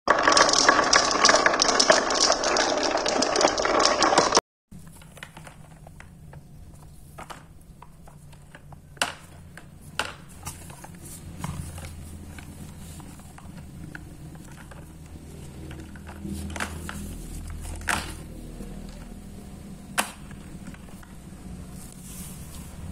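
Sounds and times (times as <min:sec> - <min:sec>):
marbles rattling down pegboard: 0:00.1 - 0:04.4.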